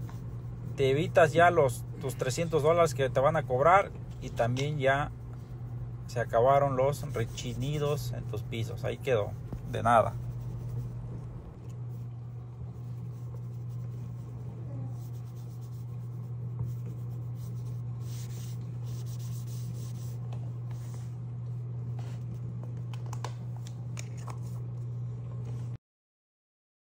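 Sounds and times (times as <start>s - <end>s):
steady low hum: 0.0s - 25.8s
cloth rubbing on wooden floor: 9.3s - 11.6s, 13.0s - 21.0s.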